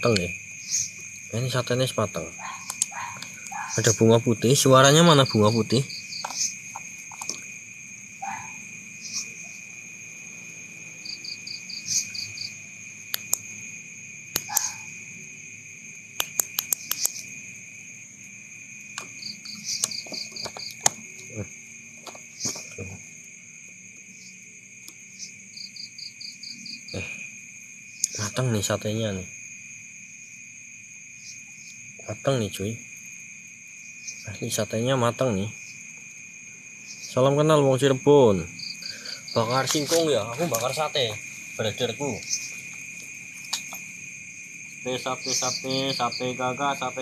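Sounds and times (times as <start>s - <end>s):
crickets trilling: 0.0s - 47.0s
sharp clicks: 2.6s - 3.6s, 13.1s - 13.4s, 14.3s - 14.7s, 16.2s - 17.2s, 19.0s - 21.0s.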